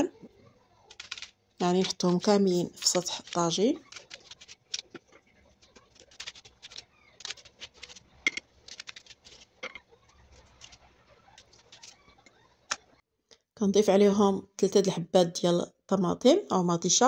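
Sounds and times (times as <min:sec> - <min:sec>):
knife slicing onion: 0:05.9 - 0:08.0.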